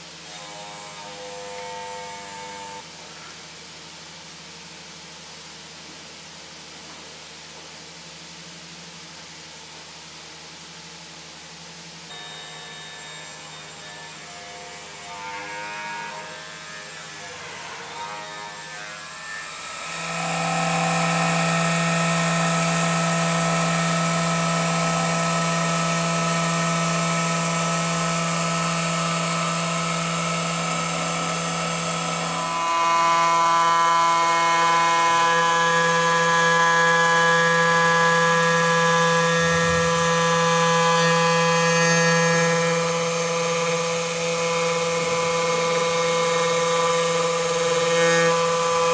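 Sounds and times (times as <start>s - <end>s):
stone grinding machine humming and whining: 12.1s - 48.9s.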